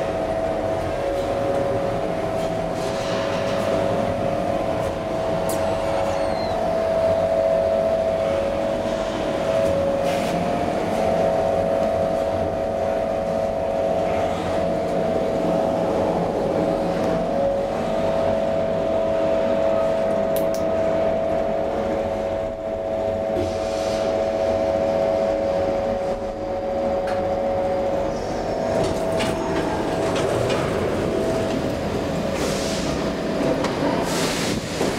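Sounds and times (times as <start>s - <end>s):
elevator rumble and whine: 0.0s - 34.9s
elevator clunks: 28.4s - 32.5s.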